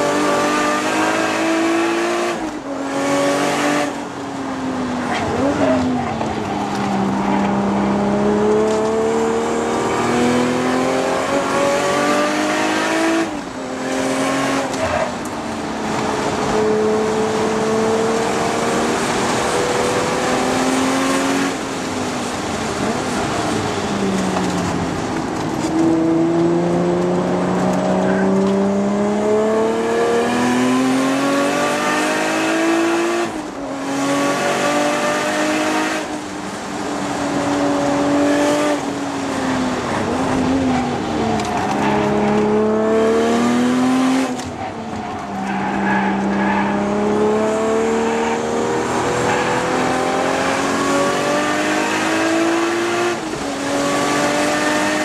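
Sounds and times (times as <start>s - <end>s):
car engine revving hard: 0.0s - 4.0s, 7.2s - 15.1s, 25.8s - 36.3s, 37.0s - 44.4s, 45.5s - 55.0s.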